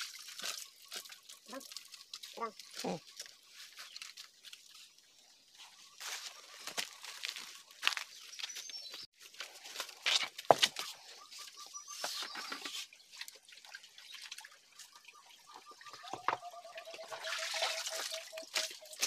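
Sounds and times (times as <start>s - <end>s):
footsteps on rock and dry leaves: 0.0s - 11.0s
creek water trickling: 0.0s - 19.0s.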